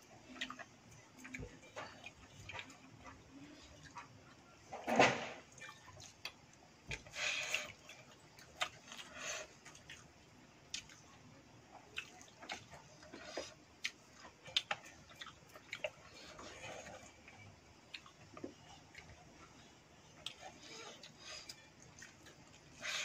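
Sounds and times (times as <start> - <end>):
slurping and chewing: 5.5 - 23.0.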